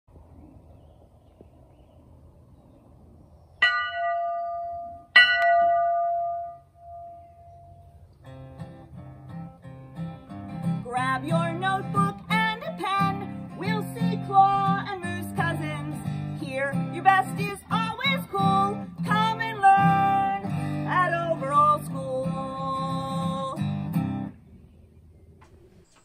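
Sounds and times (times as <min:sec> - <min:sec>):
large bell ringing: 0:03.6 - 0:08.0
acoustic guitar strumming: 0:04.1 - 0:24.3
person singing: 0:10.8 - 0:23.6.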